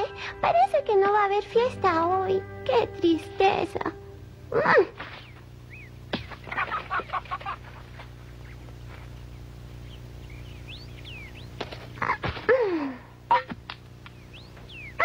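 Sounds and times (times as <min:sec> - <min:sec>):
hens clucking: 0:04.7 - 0:12.5
faint high bird chirps: 0:05.0 - 0:07.3, 0:08.3 - 0:12.2, 0:14.1 - 0:15.0.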